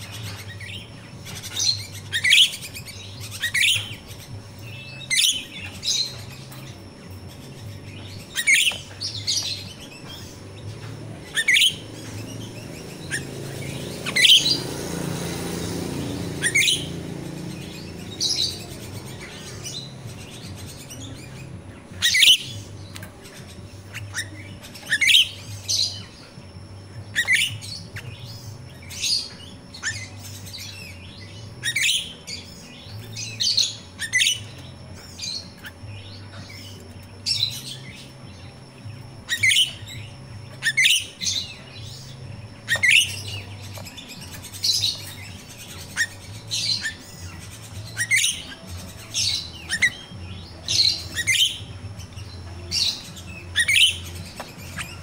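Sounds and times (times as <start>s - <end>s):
myna bird chirping: 0.0s - 55.0s.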